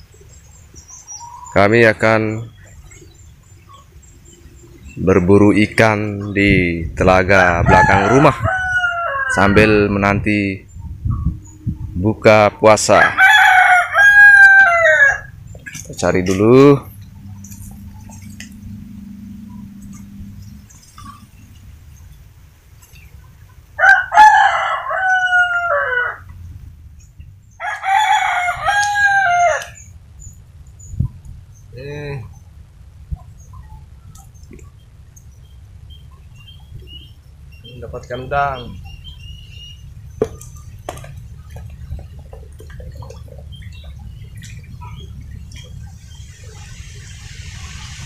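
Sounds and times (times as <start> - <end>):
steady low rumble: 1.9 - 23.8, 26.2 - 48.0
rooster crowing: 7.4 - 9.9, 12.8 - 15.4, 23.8 - 26.3, 27.6 - 29.9.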